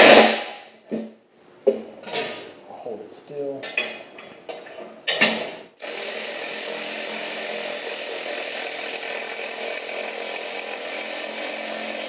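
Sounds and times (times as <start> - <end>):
power tool whirring: 5.8 - 12.0.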